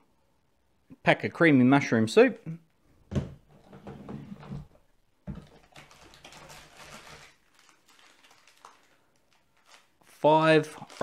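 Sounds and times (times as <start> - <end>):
foil sachets crinkling: 5.4 - 11.0.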